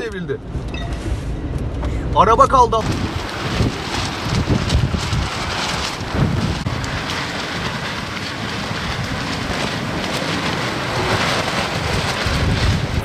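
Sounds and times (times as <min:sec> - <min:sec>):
wind rumbling on microphone: 0:00.0 - 0:13.0
heavy rain: 0:01.2 - 0:13.0.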